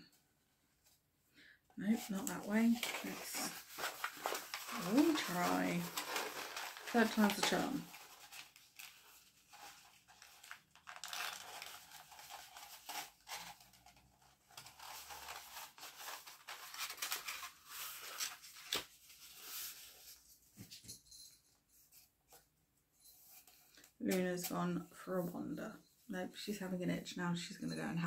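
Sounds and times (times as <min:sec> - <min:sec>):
paper rustling and crinkling: 0:01.8 - 0:20.8.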